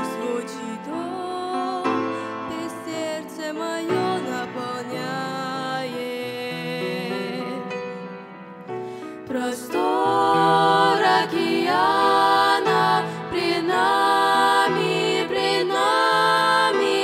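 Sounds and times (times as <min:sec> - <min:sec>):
girls singing hymn in harmony: 0:09.3 - 0:17.0.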